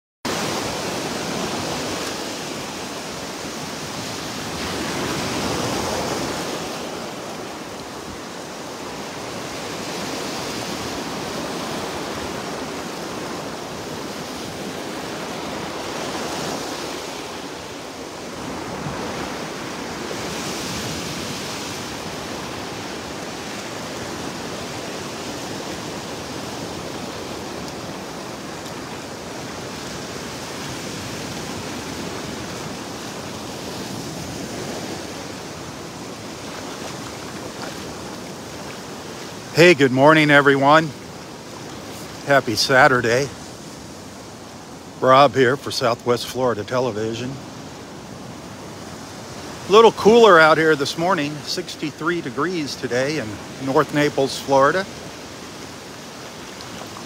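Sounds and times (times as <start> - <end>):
small waves washing on sand: 0.3 - 57.0.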